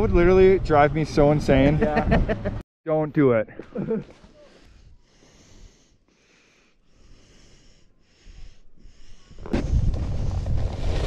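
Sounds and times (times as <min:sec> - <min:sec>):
person breathing hard: 0:04.3 - 0:09.5
wind noise rush: 0:09.4 - 0:11.0.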